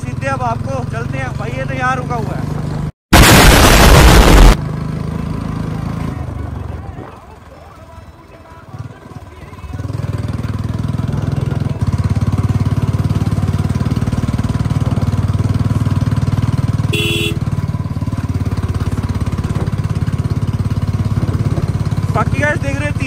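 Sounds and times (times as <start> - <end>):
motorcycle engine under throttle: 8.7 - 23.0
short horn beep: 16.9 - 17.5.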